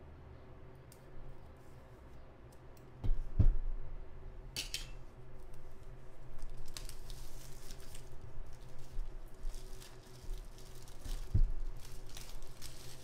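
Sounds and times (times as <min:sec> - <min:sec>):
plastic wrapping crinkling: 0:05.5 - 0:13.0.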